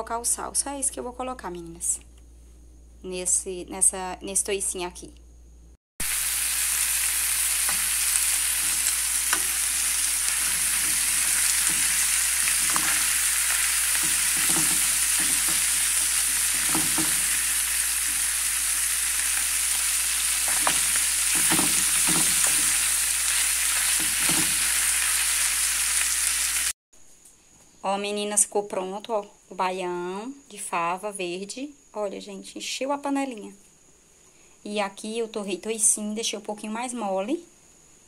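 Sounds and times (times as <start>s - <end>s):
pork fat sizzling in a pan: 6.0s - 26.8s
spoon scraping a pan: 7.4s - 25.2s.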